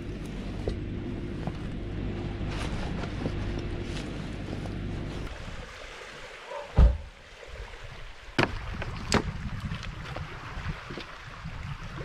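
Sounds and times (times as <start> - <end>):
waves on pebble shore: 5.3 - 8.9
loud low thump: 6.8 - 7.1
wind on microphone: 6.8 - 12.0.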